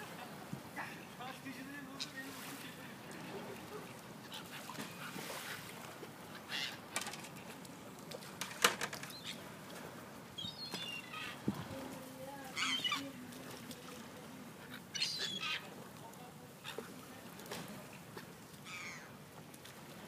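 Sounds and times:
gulls squawking: 0:10.4 - 0:11.5, 0:12.5 - 0:13.2, 0:14.7 - 0:15.8, 0:18.6 - 0:19.1.

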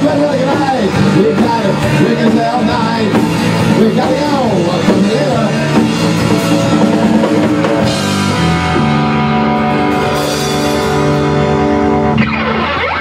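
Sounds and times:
rock band final chord ringing: 0:00.0 - 0:13.0
guitar pitch slide: 0:05.8 - 0:13.0.

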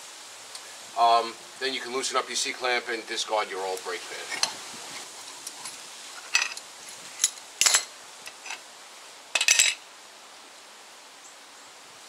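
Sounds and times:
metal tools clinking: 0:04.3 - 0:04.6, 0:05.2 - 0:08.6, 0:09.4 - 0:09.8.

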